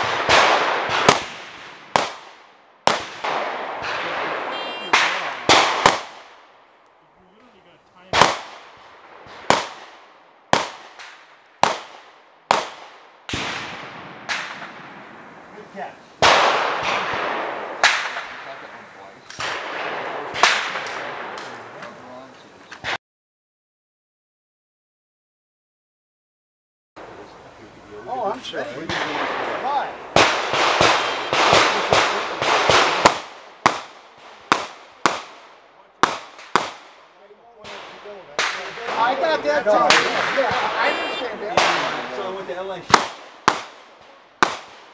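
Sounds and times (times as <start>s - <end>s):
pistol shots: 0.0s - 6.4s, 8.1s - 14.9s, 16.2s - 18.5s, 28.9s - 37.0s, 37.6s - 42.2s, 42.9s - 44.9s
dull gunshot report with tail: 28.9s - 36.9s.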